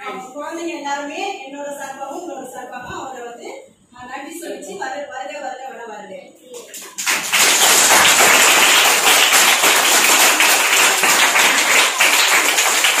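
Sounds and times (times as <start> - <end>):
children clapping: 6.6 - 13.0.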